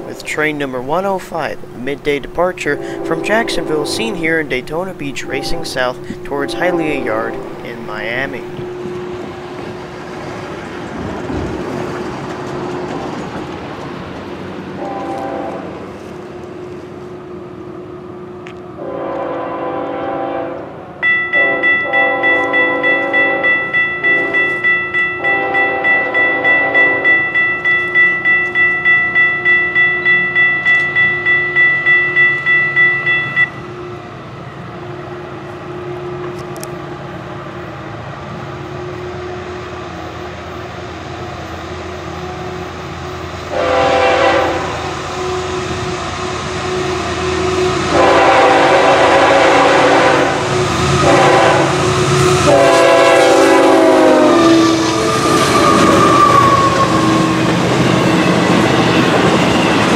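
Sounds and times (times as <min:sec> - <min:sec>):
crossing bell ringing: 0:00.0 - 0:09.1, 0:21.0 - 0:34.7
rail rumble: 0:00.0 - 0:59.9
train horn blasts: 0:02.6 - 0:08.9, 0:14.8 - 0:15.8, 0:18.8 - 0:24.6, 0:25.2 - 0:27.3, 0:43.5 - 0:58.4.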